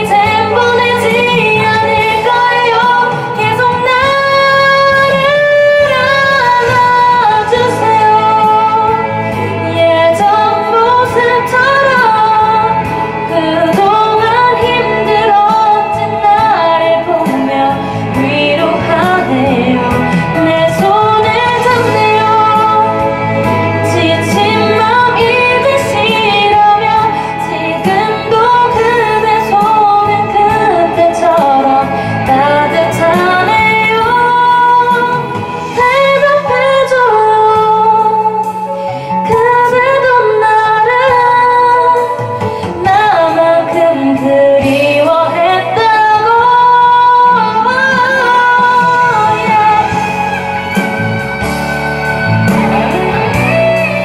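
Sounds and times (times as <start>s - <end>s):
karaoke backing track: 0.0s - 54.0s
woman singing into microphone: 0.0s - 54.0s.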